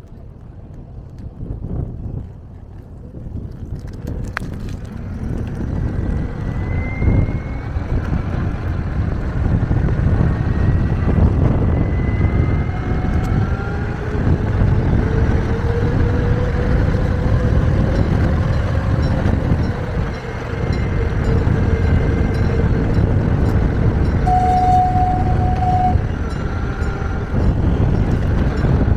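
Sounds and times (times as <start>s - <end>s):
tyres rolling on asphalt: 0.0s - 28.9s
wind: 0.0s - 28.9s
electric motor whine: 9.6s - 28.6s.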